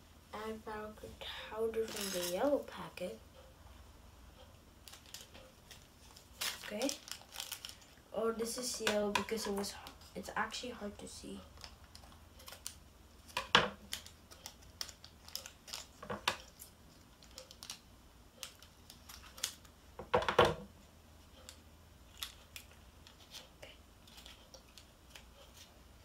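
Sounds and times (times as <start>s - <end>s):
scissors snipping packet: 1.9s - 2.4s, 4.9s - 7.8s, 13.8s - 17.8s.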